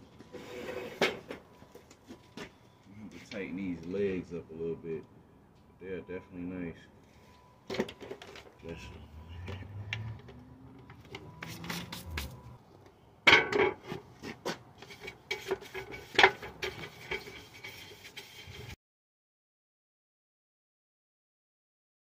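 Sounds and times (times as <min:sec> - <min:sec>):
brush scrubbing table top: 0:11.4 - 0:12.4, 0:14.8 - 0:18.8
knocks and scrapes: 0:13.4 - 0:18.8.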